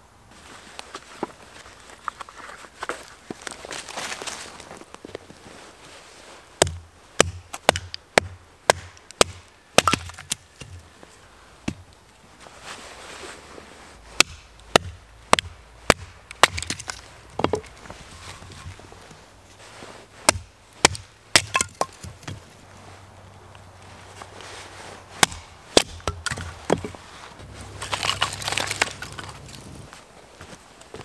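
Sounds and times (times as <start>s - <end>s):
axe chopping wood: 6.6s - 10.8s, 14.2s - 17.7s, 20.2s - 22.4s, 25.2s - 27.0s, 27.7s - 29.8s.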